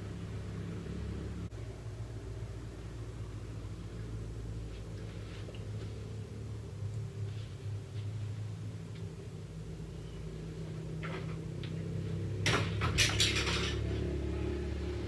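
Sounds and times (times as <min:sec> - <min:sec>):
steady low hum: 0:00.0 - 0:15.0
rustles: 0:04.5 - 0:09.2.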